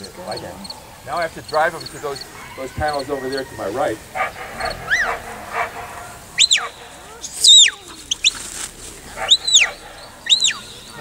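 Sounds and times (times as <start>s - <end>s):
herding whistle notes: 6.4s - 6.8s, 7.4s - 8.4s, 9.3s - 11.0s.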